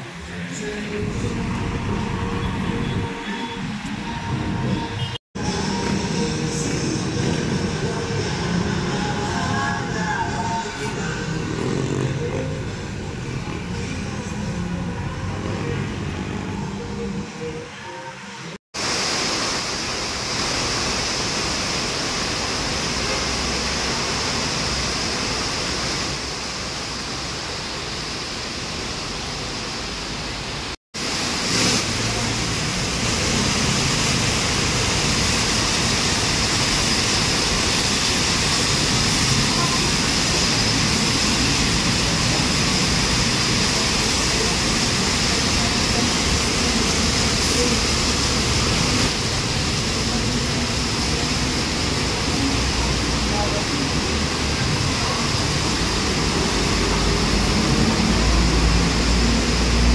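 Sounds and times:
road traffic: 0.0 - 59.9
rain falling: 18.8 - 59.9.

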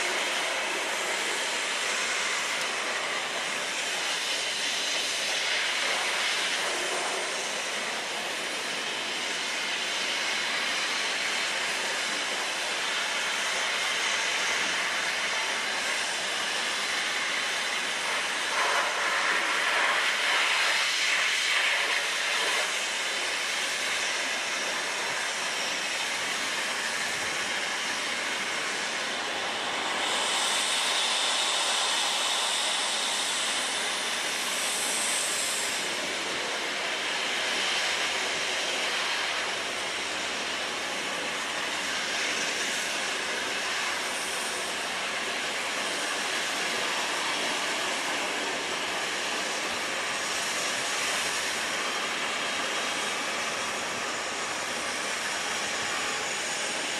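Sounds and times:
high hiss: 26.4 - 36.0.

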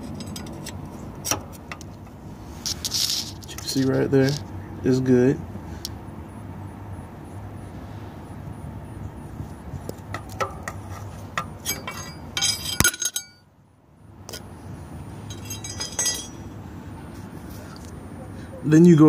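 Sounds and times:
metallic clinking and rattling: 0.0 - 4.4, 10.0 - 13.5, 15.2 - 16.7
steady low hum: 0.0 - 18.9.

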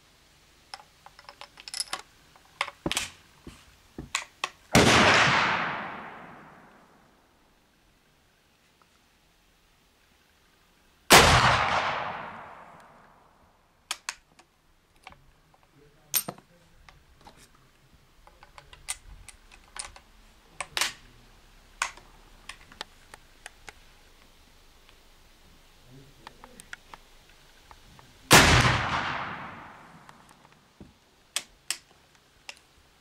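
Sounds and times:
rifle shot with echo: 4.7 - 7.0, 11.1 - 13.2, 28.3 - 30.2.

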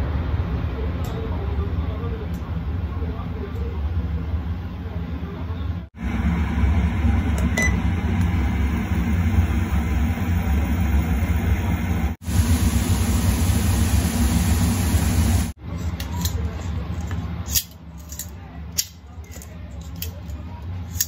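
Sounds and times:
kitchen fan humming: 0.0 - 21.0
prawns frying in oil: 6.0 - 15.6.

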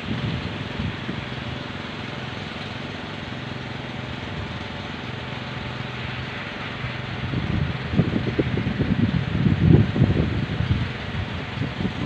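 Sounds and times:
wind buffeting microphone: 0.0 - 1.6, 6.9 - 12.0
bamboo wind propellers humming: 0.0 - 12.0
rushing wind: 0.0 - 12.0.

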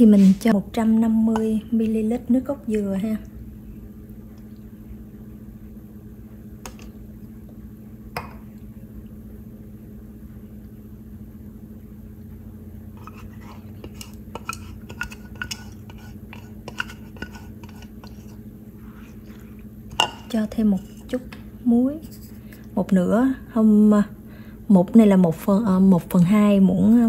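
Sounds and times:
steady low hum: 0.0 - 27.0
spatula scraping a glass jug: 13.0 - 19.3, 19.9 - 21.2.

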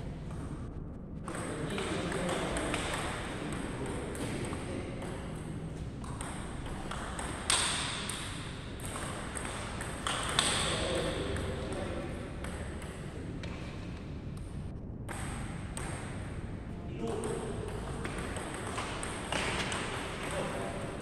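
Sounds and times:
table tennis ball clicking: 6.1 - 11.6.

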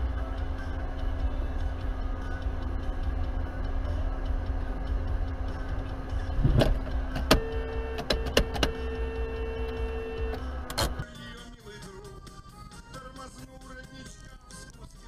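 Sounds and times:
steady hum: 0.0 - 11.0
car engine and road rumble: 0.0 - 15.0.

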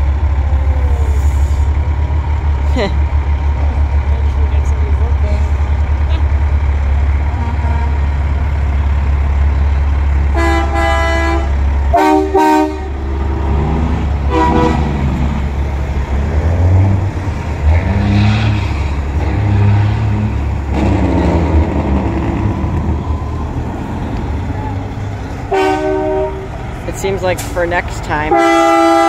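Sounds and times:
diesel truck engines rumbling: 0.0 - 29.0
truck horn blast: 7.3 - 8.1, 10.3 - 13.1, 14.3 - 15.0, 25.5 - 26.6, 28.3 - 29.0.

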